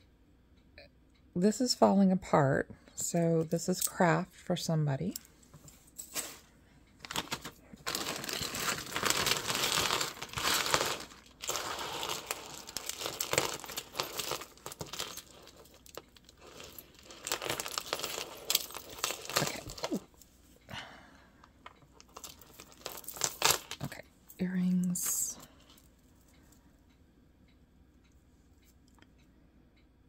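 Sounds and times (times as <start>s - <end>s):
plastic bag crinkling: 7.0s - 20.1s, 22.0s - 24.0s
beads and chain clicking: 7.8s - 20.1s, 22.0s - 23.9s.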